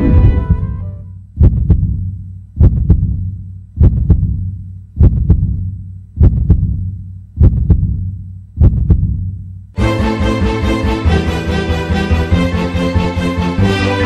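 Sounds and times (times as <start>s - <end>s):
heartbeat double thump: 1.4s - 9.4s.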